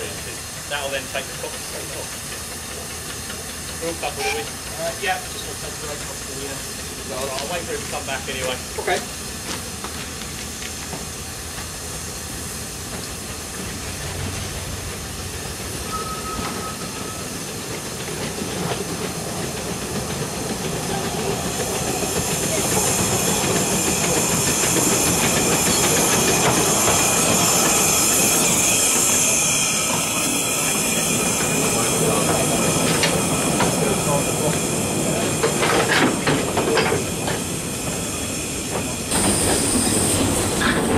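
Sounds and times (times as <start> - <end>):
steam locomotive hissing: 0.0 - 40.9
steam train passing: 0.0 - 40.9
wheels clacking over rail joints: 17.4 - 29.2, 29.9 - 40.9.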